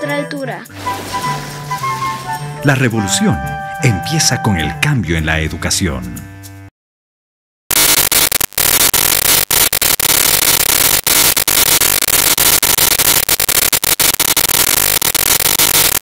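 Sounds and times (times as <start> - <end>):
loud static hiss: 7.7 - 16.0.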